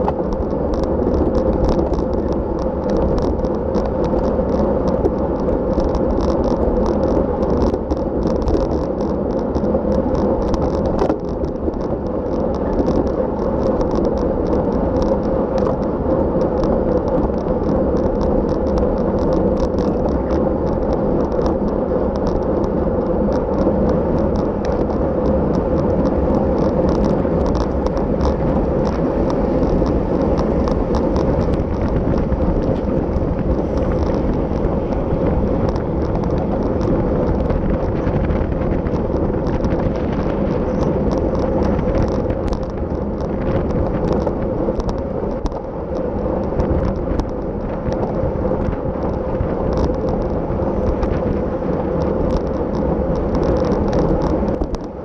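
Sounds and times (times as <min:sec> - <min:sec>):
bicycle rattles and ticks: 0:00.0 - 0:55.0
road and wind noise: 0:00.0 - 0:55.0.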